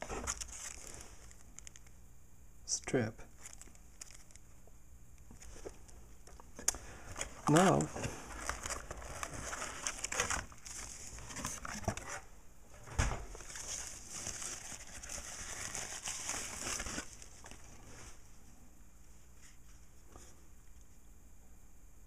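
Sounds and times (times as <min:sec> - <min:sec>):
plastic bag crinkling: 0:00.0 - 0:01.9, 0:03.3 - 0:04.4, 0:06.6 - 0:12.2, 0:13.3 - 0:17.9
faint handling sounds: 0:00.0 - 0:02.0, 0:03.3 - 0:12.3, 0:13.3 - 0:21.0.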